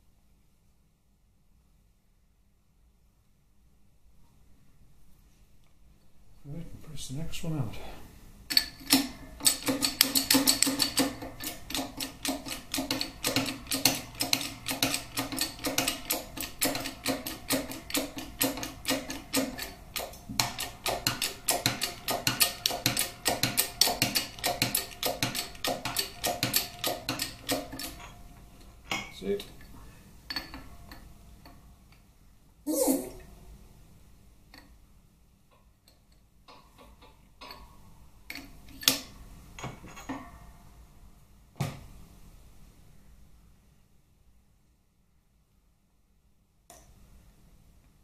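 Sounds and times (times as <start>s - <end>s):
shop press metallic clicking: 8.5s - 28.1s.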